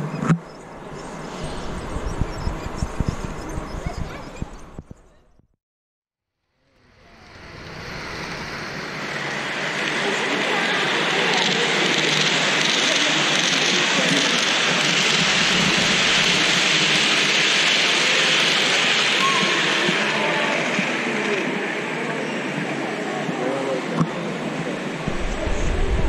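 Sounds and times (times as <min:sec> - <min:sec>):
murmur of voices: 0:07.2 - 0:26.0.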